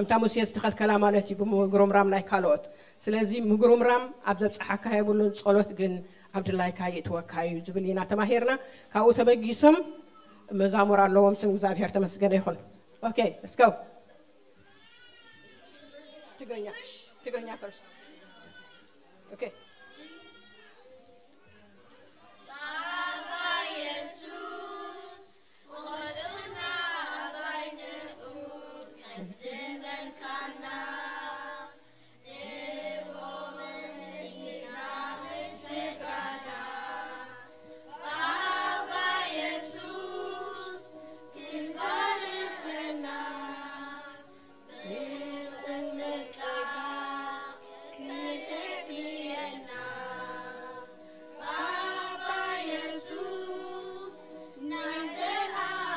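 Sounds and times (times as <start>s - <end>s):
children singing together: 22.4s - 55.9s.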